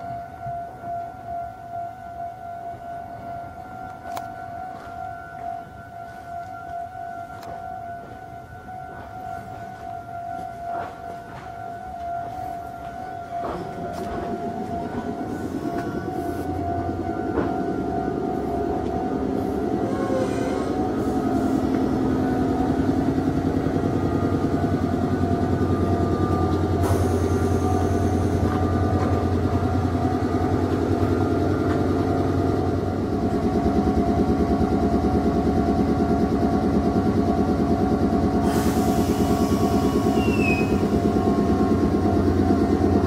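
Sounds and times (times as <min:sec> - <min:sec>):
electric train equipment humming: 0:00.0 - 0:43.0
compressed-air hiss: 0:38.4 - 0:40.4.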